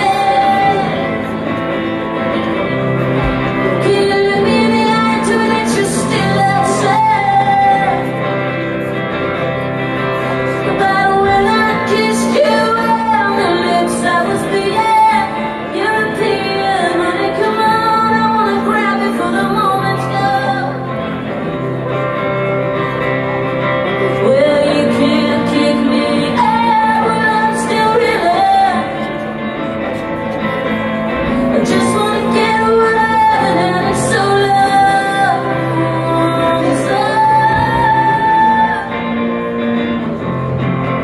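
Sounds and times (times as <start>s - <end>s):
woman singing: 0.0s - 1.6s, 3.4s - 8.6s, 10.4s - 21.4s, 23.9s - 30.0s, 31.1s - 39.9s
electric guitar: 0.0s - 41.0s.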